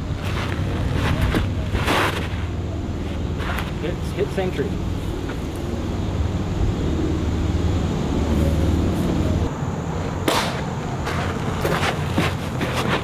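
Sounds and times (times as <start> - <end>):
sudden sharp crack: 10.2 - 10.7.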